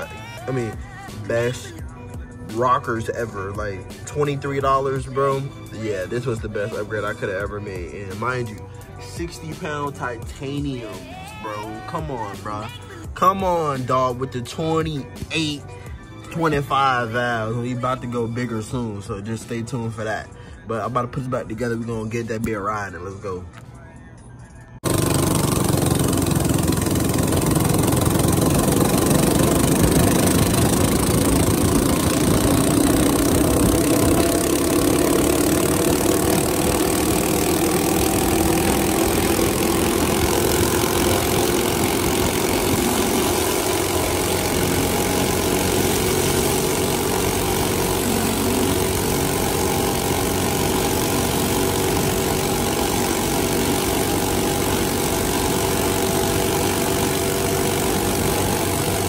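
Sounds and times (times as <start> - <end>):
mini bike engine running: 0.0 - 1.6, 24.8 - 59.0.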